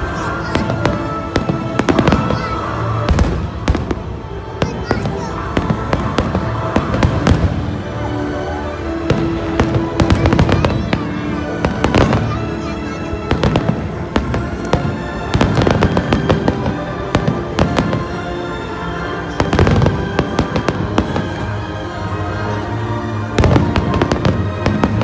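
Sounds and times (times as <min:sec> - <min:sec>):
fireworks bursting: 0:00.0 - 0:07.8, 0:09.0 - 0:12.4, 0:13.2 - 0:18.1, 0:19.3 - 0:21.6
music playing: 0:00.0 - 0:25.0.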